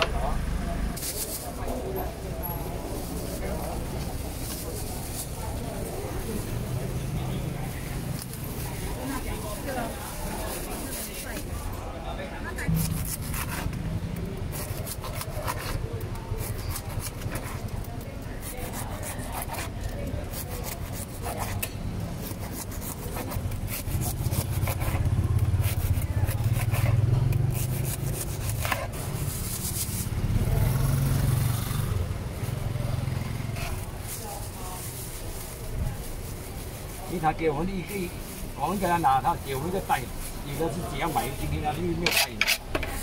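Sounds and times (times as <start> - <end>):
vehicle engine rumble: 0.0 - 10.4
bread knife sawing bread: 12.7 - 13.8, 14.5 - 17.7, 18.4 - 30.1.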